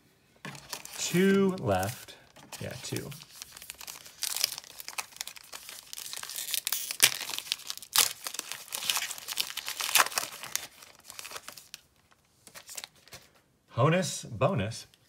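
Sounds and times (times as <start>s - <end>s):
wrapper crinkling: 0.5s - 13.3s
foil pack tearing: 2.6s - 11.8s.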